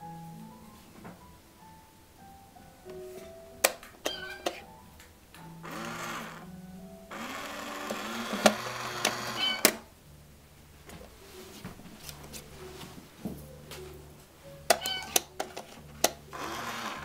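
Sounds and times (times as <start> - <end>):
small electric motor whirring: 5.6 - 6.5, 7.1 - 9.6, 16.3 - 17.0.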